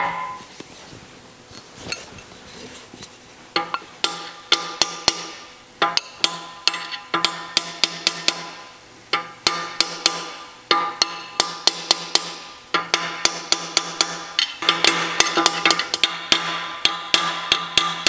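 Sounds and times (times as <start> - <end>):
hammer tapping steel punch: 3.6 - 18.0.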